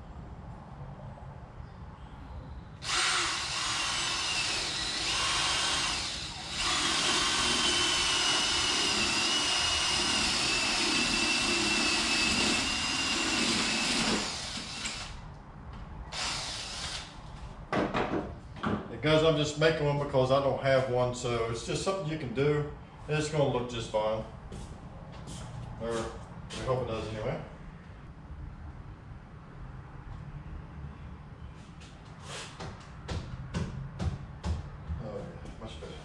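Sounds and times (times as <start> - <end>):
cordless drill boring through wood: 2.8 - 15.2, 16.1 - 17.1.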